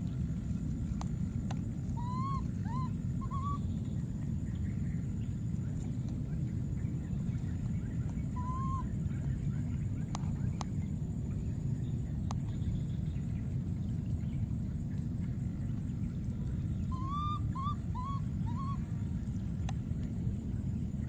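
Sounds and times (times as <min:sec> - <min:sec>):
steady low rumble: 0:00.0 - 0:21.0
baby macaque coo calls: 0:02.0 - 0:03.7, 0:08.3 - 0:09.0, 0:16.8 - 0:18.8.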